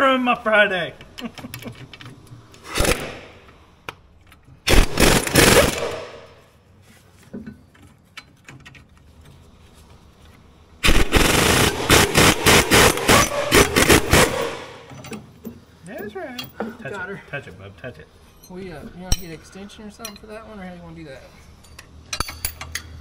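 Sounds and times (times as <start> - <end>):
air impact wrench hammering: 2.6 - 3.4, 4.7 - 6.4, 10.8 - 15.0.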